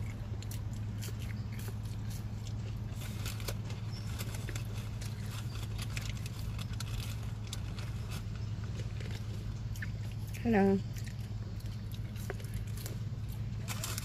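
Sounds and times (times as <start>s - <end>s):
chewing fries: 0.0s - 14.0s
low hum inside car: 0.0s - 14.0s
paper packaging crackling: 2.6s - 9.3s, 12.2s - 14.0s.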